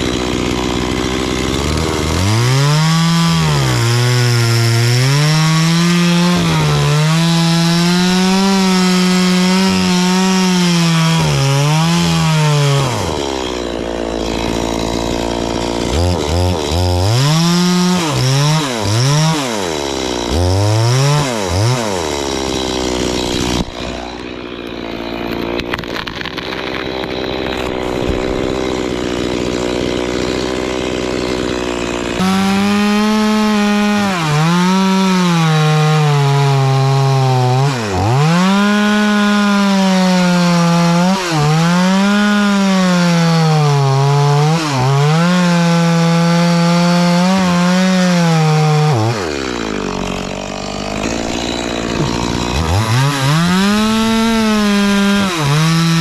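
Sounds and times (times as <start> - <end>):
chainsaw cutting and revving: 0.0 - 56.0.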